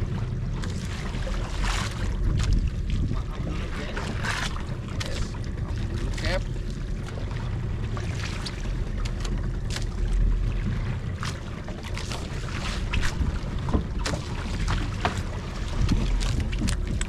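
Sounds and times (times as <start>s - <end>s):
boat motor rumbling: 0.0s - 17.0s
water splashing: 0.0s - 17.0s
wind buffeting microphone: 1.0s - 6.4s, 12.2s - 17.0s.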